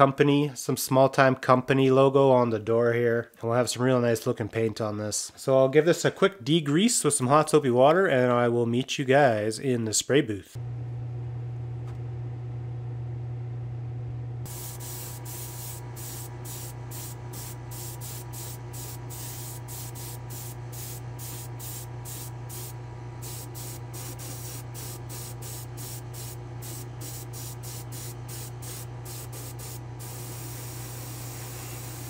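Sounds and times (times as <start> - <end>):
steady low hum: 10.6 - 32.0
airbrush spraying bursts: 14.5 - 32.0.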